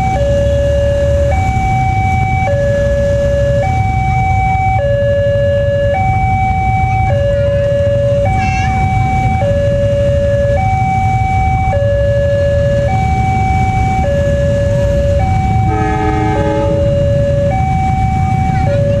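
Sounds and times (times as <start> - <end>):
idling traffic rumble: 0.0 - 19.0
level crossing two-tone alarm: 0.0 - 19.0
horn: 15.7 - 16.9.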